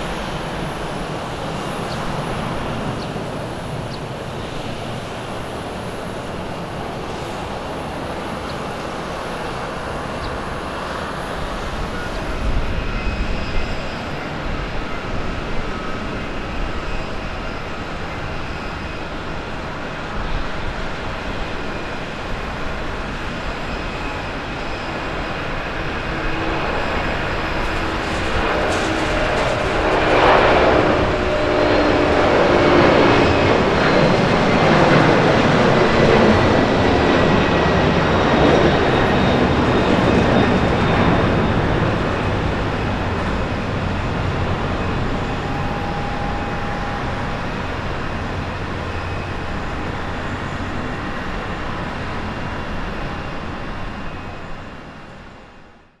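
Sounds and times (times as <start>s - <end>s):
jet engines roaring at takeoff: 0.0s - 56.0s.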